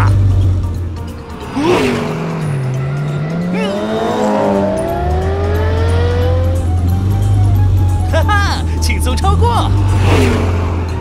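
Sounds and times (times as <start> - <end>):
background music: 0.0 - 11.0
cartoon race car engines revving: 1.3 - 7.4, 8.5 - 11.0.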